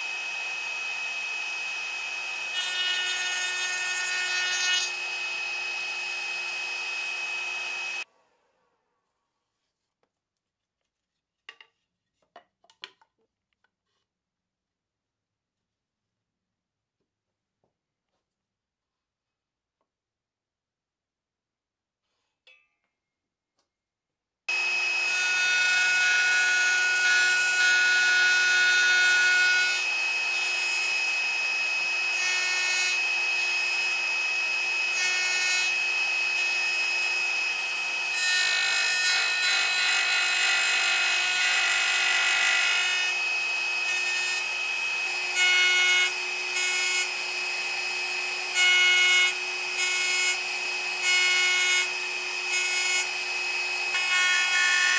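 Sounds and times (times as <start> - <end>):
router cutting wood: 0.0 - 8.0, 24.5 - 54.9.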